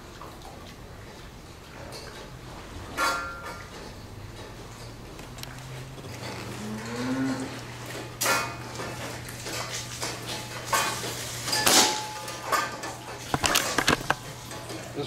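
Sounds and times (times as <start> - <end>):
low machine hum: 0.0 - 11.4
metal clanks and rattles: 1.0 - 12.0, 12.6 - 14.8.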